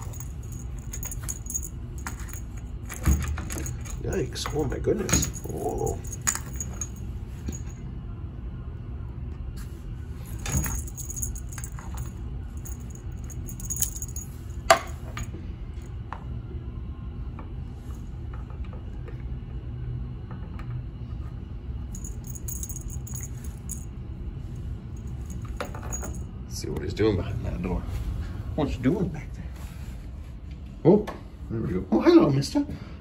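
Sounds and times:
cat toy jingling and rattling: 0.0 - 7.8, 10.4 - 15.3, 21.9 - 23.9, 24.9 - 26.3
low steady hum: 0.0 - 33.0.

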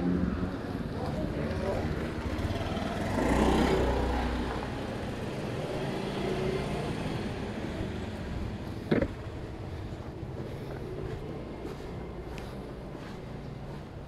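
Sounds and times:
scooter engine revving: 1.7 - 8.0.

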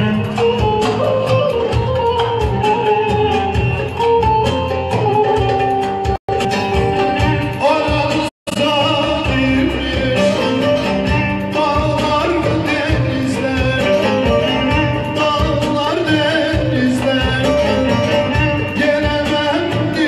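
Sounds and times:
band music: 0.0 - 20.0
man singing into a microphone: 7.4 - 20.0.

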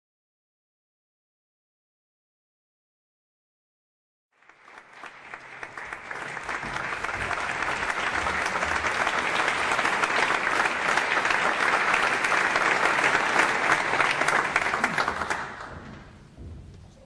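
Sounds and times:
audience applauding: 4.3 - 16.2.

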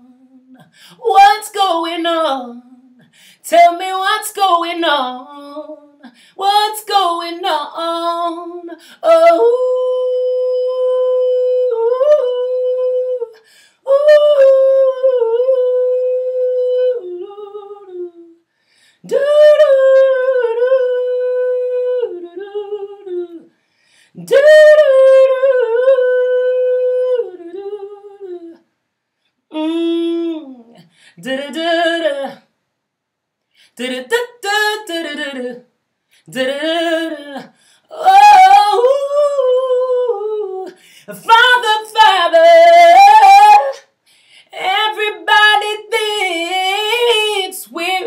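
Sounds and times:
woman breathing: 0.7 - 1.0, 3.0 - 3.5, 6.1 - 6.4, 18.5 - 19.1, 23.5 - 24.2, 30.8 - 31.2, 37.5 - 37.9, 40.7 - 41.1, 44.0 - 44.6.

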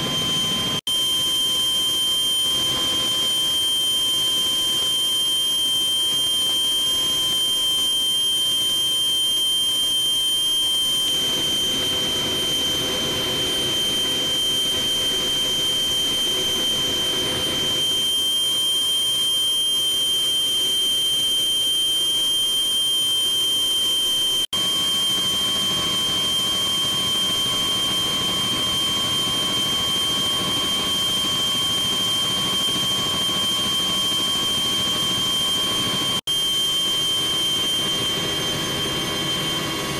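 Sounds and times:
helicopter cabin noise: 0.0 - 0.8, 25.6 - 39.9.

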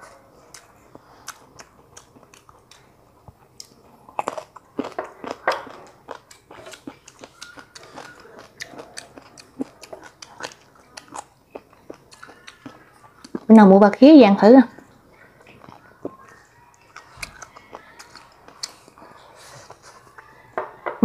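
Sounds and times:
chewing food: 0.0 - 13.7, 14.7 - 20.6.

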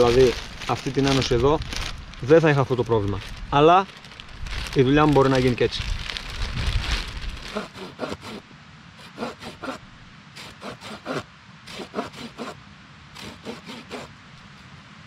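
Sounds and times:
blade sawing back and forth: 7.4 - 8.4, 9.0 - 9.8, 10.4 - 12.6, 13.2 - 14.1.

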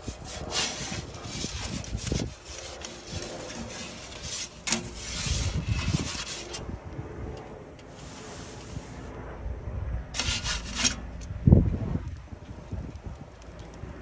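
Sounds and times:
metal peel scraping baking stone: 0.0 - 6.6, 10.2 - 11.1.

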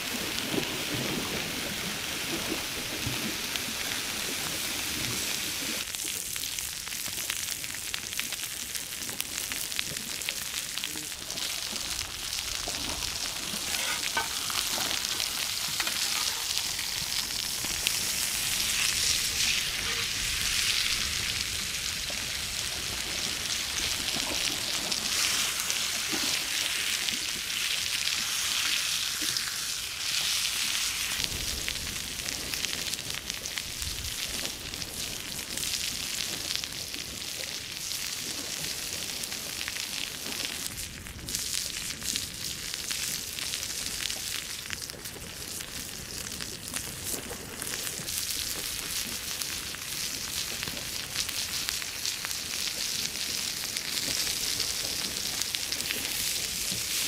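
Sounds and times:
steak sizzling on grill pan: 10.8 - 31.3.

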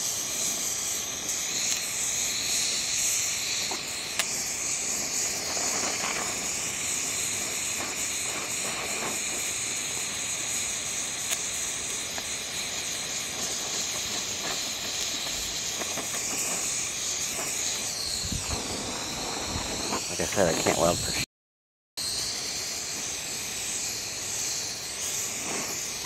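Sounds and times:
torch flame hissing: 0.0 - 21.3, 22.0 - 26.0.

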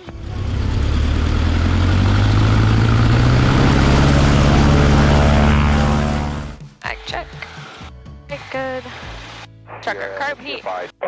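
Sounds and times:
small plane engine running up: 0.0 - 6.6.

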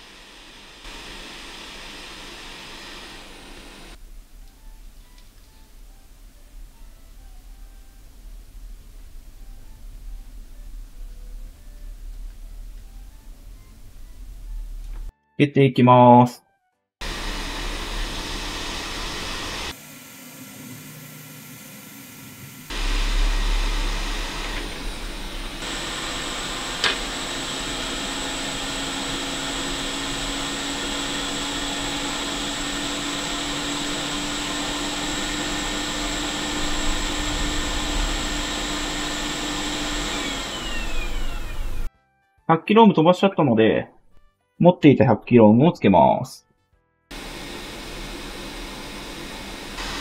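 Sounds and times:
heat gun blowing: 0.0 - 4.0, 17.0 - 41.9, 47.1 - 50.0.

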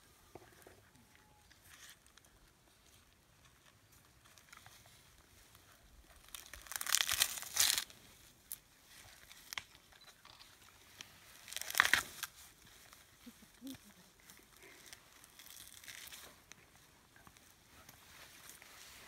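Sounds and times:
dry sheaths crackling and tearing: 6.2 - 9.9, 11.0 - 13.1, 14.4 - 16.6.

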